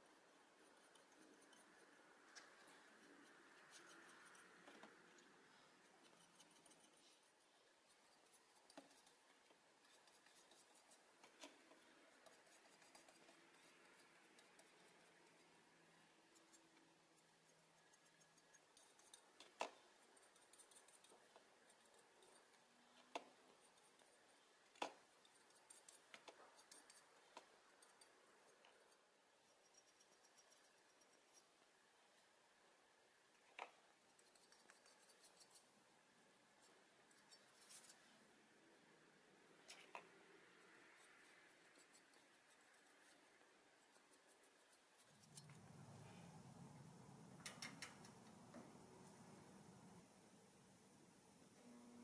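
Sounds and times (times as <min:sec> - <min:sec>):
small clicks and taps of tools: 0:47.4 - 0:48.8.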